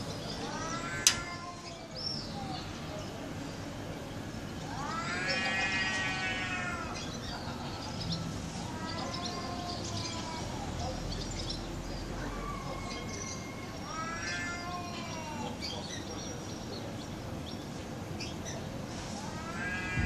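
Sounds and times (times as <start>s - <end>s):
cat yowling: 0.4s - 1.9s, 4.7s - 7.1s, 12.2s - 15.6s, 19.2s - 20.0s.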